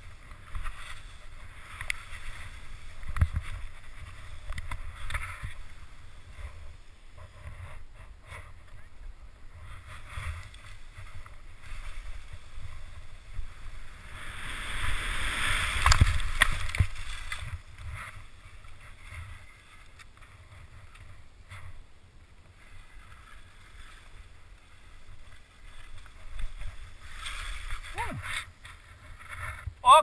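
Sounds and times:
skis scraping through snow: 0.0 - 29.8.

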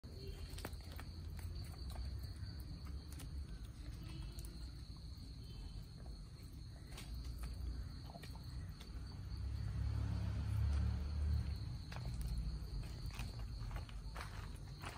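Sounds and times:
chickens pecking and scratching: 0.0 - 9.4
high insect drone: 0.1 - 14.9.

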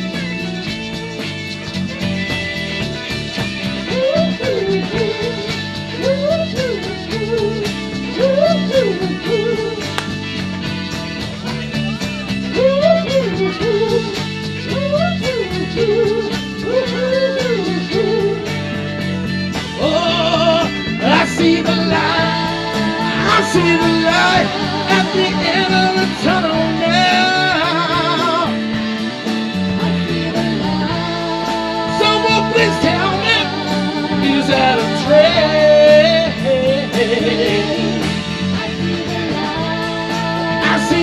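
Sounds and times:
electric guitar: 0.0 - 41.0
live soul band: 0.0 - 41.0
singers at full voice: 19.8 - 41.0.

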